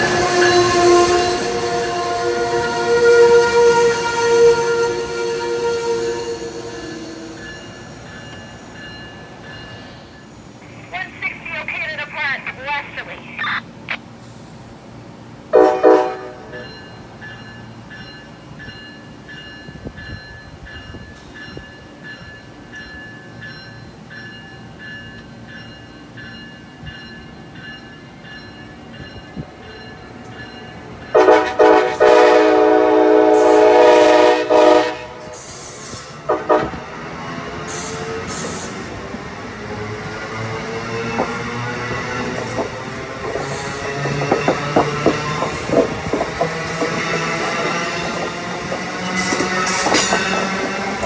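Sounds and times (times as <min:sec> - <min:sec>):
train horn blasts: 0:00.0 - 0:06.9, 0:15.5 - 0:16.6, 0:31.1 - 0:35.4, 0:36.3 - 0:36.9
train wheels ringing: 0:00.0 - 0:10.6, 0:16.4 - 0:32.3, 0:33.3 - 0:51.0.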